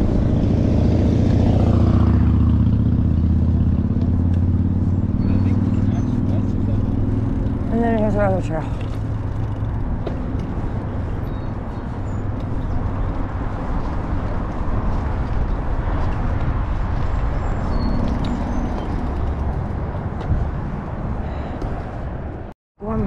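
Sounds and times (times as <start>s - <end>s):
road traffic: 0.0s - 23.0s
wind on the microphone: 8.7s - 23.0s.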